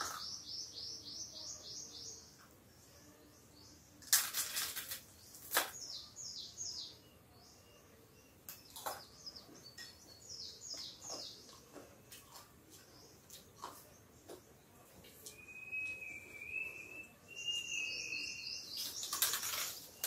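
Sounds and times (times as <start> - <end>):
birds chirping: 0.0 - 20.0
chewing crunches: 11.5 - 13.9.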